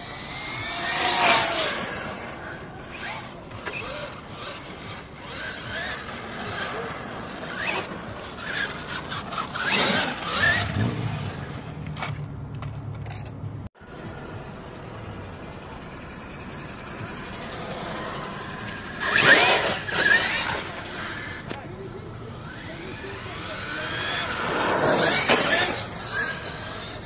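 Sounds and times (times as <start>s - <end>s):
electric motor whine: 22.2s - 27.0s.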